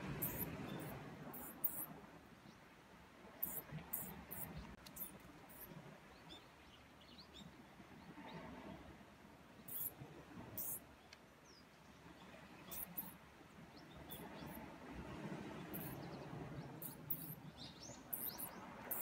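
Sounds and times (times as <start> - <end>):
mouse squeaking: 1.4 - 1.8, 3.4 - 4.1, 16.8 - 17.4.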